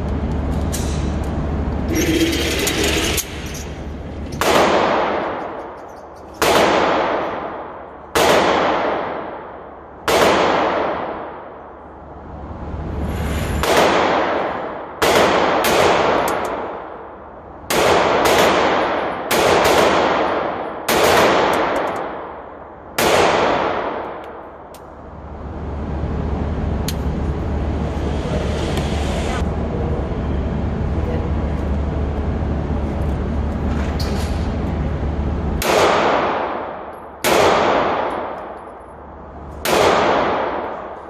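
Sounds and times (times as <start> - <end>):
pistol shots echoing indoors: 4.4 - 5.8, 6.4 - 11.7, 13.6 - 24.6, 35.6 - 38.9, 39.6 - 41.0.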